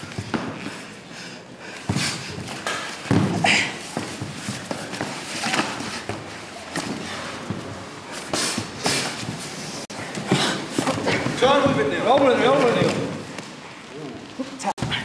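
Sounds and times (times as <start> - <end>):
bodies thudding on wooden floor: 1.9 - 7.8.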